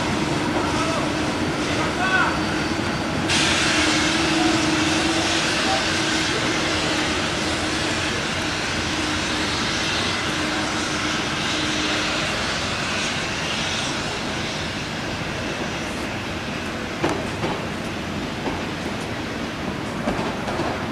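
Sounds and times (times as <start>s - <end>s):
train rumbling hiss: 0.0s - 20.9s.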